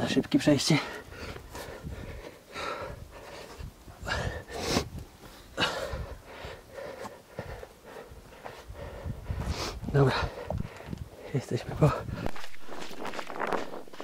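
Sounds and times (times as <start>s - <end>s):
person breathing hard: 0.9s - 11.4s.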